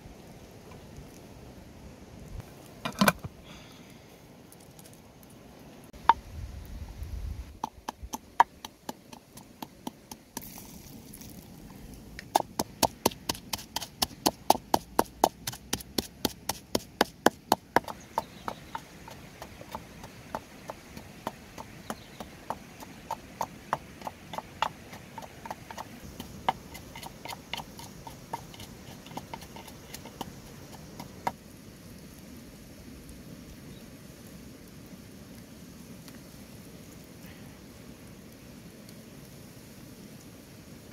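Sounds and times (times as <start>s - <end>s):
wooden pestle pounding in mortar: 7.6s - 10.5s, 12.2s - 31.4s.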